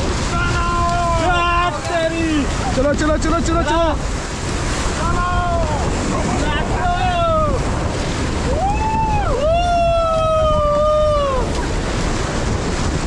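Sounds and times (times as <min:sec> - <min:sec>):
rushing whitewater: 0:00.0 - 0:13.0
wind buffeting microphone: 0:00.0 - 0:13.0
people yelling: 0:00.2 - 0:02.8, 0:04.9 - 0:07.8, 0:08.4 - 0:11.5.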